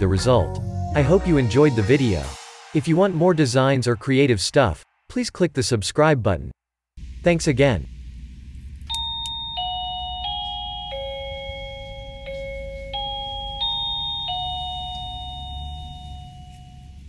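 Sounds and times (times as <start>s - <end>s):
doorbell chime melody: 8.9s - 17.0s.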